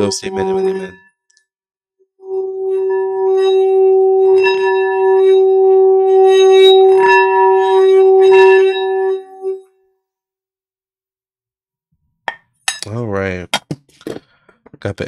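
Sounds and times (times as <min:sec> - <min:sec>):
singing bowl humming tone: 0:00.0 - 0:01.1, 0:02.2 - 0:09.7.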